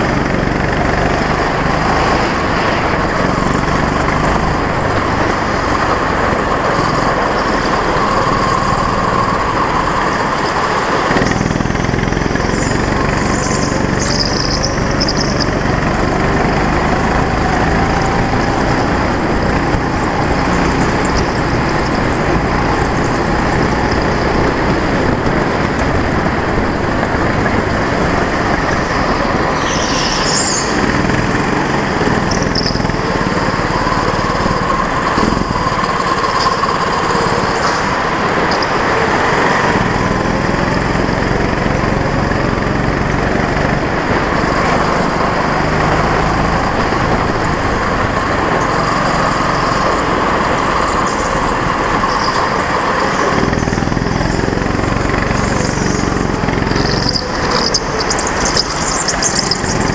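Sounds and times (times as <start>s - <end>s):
go-kart engine running hard: 0.0s - 59.9s
brief high squeal: 29.6s - 30.8s.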